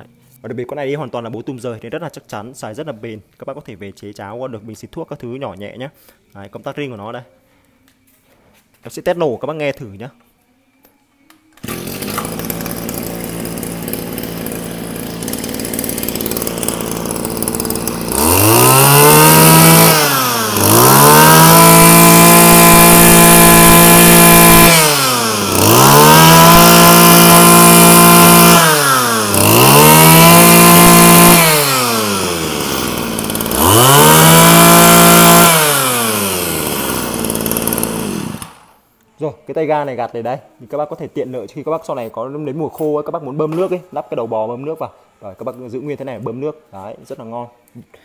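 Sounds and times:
brush-cutter engine idling and revving: 11.6 - 38.7.

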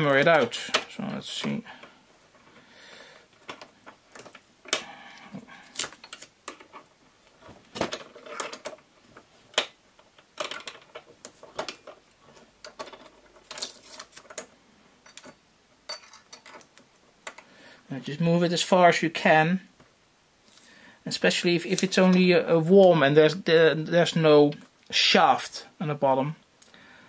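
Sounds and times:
tape pressing rustle: 3.4 - 14.5.

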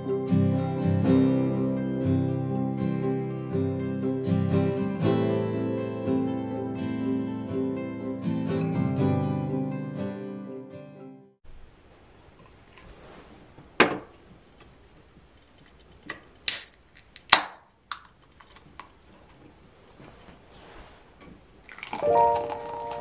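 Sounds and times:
can tab cracking open: 16.4 - 18.9.

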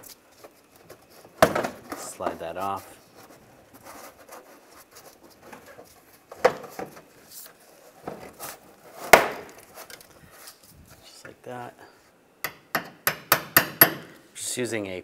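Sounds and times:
plastic rubbing and scraping: 0.0 - 11.0.

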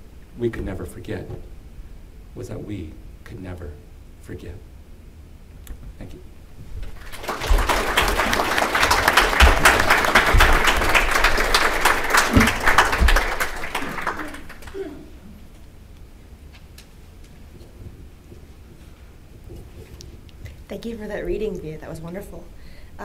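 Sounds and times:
audience applauding: 6.9 - 14.9.

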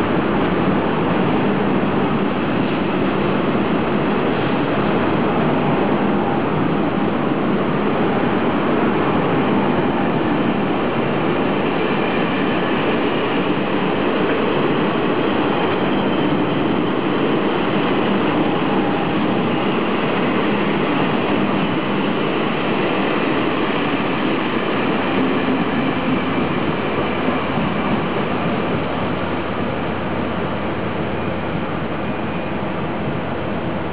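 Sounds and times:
train wheels rumbling on rails: 0.0 - 33.9.

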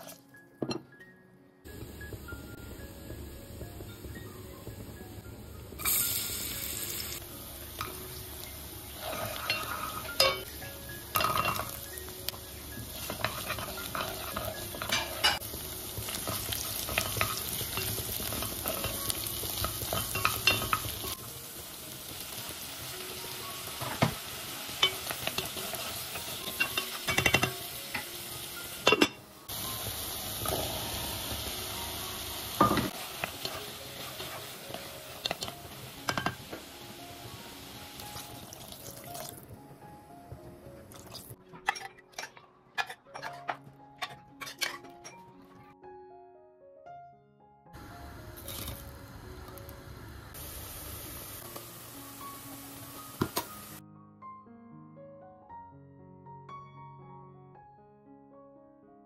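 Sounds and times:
vegetables sizzling in oil: 1.7 - 39.4, 47.8 - 53.8
wooden spoon stirring in pot: 12.9 - 21.2.

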